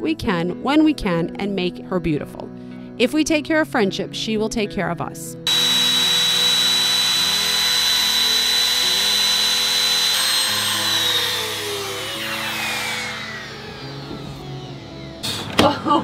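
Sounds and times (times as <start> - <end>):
router motor spinning down: 5.5 - 15.2
router cutting wood: 5.5 - 15.3
trim router whining: 5.5 - 15.3.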